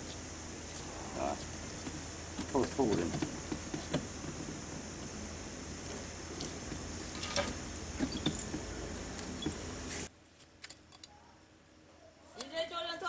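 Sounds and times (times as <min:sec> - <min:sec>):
background hum and hiss: 0:00.0 - 0:13.0.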